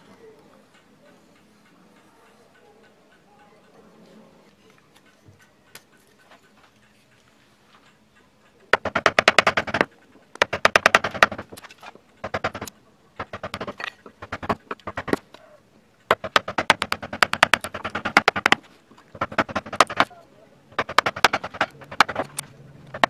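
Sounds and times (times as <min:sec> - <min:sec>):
gouge tapping into wood: 0:08.7 - 0:11.6, 0:12.2 - 0:15.2, 0:16.1 - 0:18.6, 0:19.2 - 0:20.1, 0:20.8 - 0:23.0.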